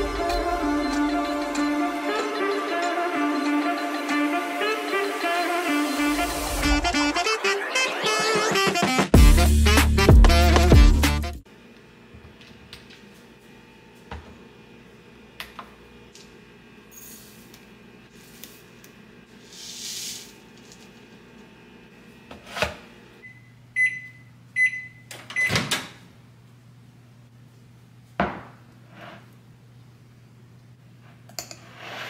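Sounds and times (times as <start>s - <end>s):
microwave oven beeps: 0.0s - 6.3s, 23.2s - 25.7s
low kitchen hum: 11.5s - 32.0s.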